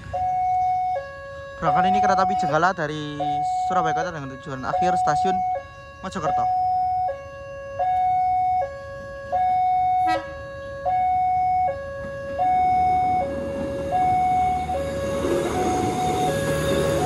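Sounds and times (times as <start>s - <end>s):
two-tone crossing alarm: 0.0s - 17.0s
approaching train rumble: 11.4s - 17.0s.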